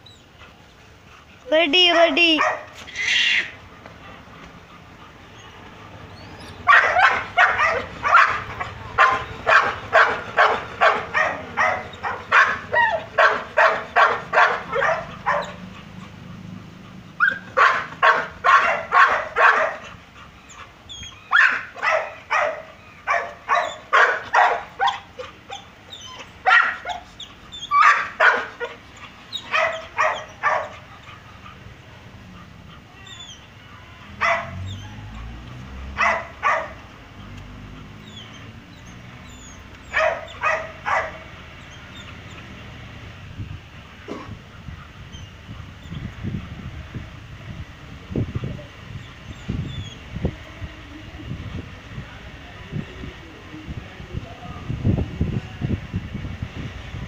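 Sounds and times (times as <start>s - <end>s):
dog barking: 2.1s - 2.8s, 6.6s - 15.6s, 17.2s - 19.9s, 21.3s - 25.1s, 26.4s - 27.1s, 27.7s - 28.8s, 29.5s - 30.8s, 34.2s - 35.2s, 35.9s - 36.8s, 39.9s - 41.3s.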